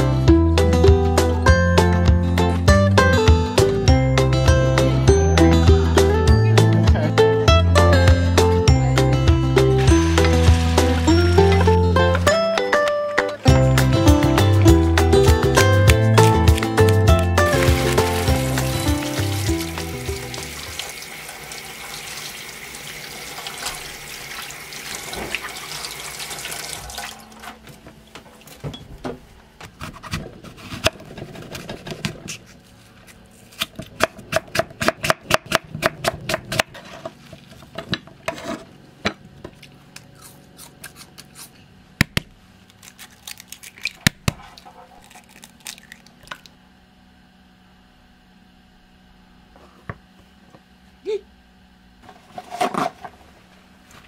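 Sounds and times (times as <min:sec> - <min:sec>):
tap water running into sink: 0:17.5 - 0:27.2.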